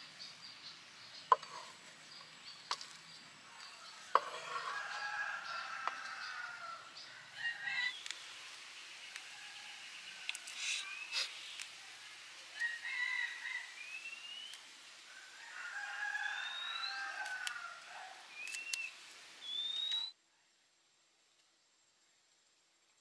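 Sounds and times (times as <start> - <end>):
birds calling: 0.0 - 9.5, 15.6 - 20.1.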